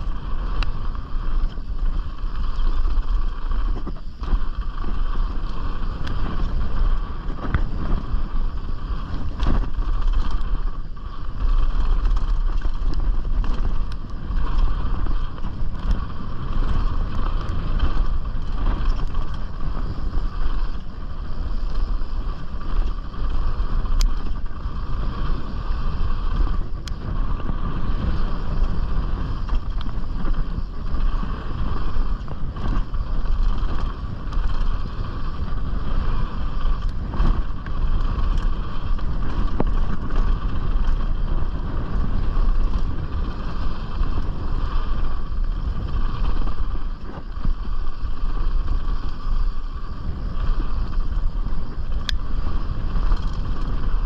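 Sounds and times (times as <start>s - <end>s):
tyres rolling over dirt: 0.0s - 54.0s
wind buffeting microphone: 0.0s - 54.0s
bike clicks and knocks: 0.1s - 47.8s, 50.4s - 54.0s.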